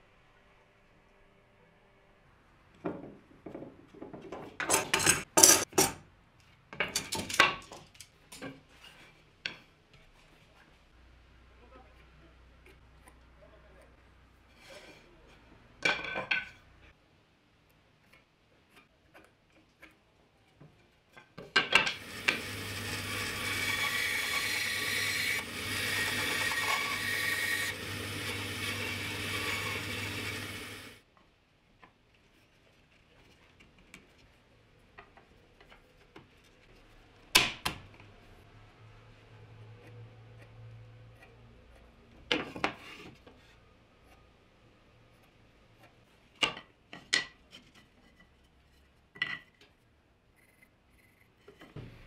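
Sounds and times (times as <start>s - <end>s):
band saw cutting wood: 21.9s - 31.0s
band saw motor hum: 22.0s - 31.0s.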